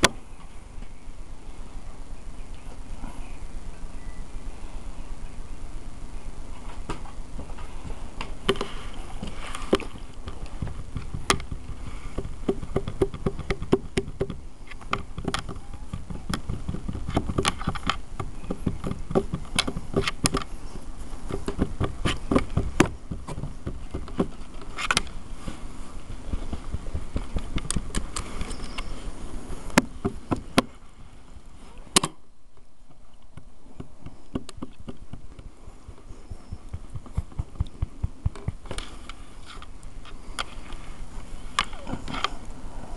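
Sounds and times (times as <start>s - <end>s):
fur rubbing on microphone: 7.7s - 31.9s.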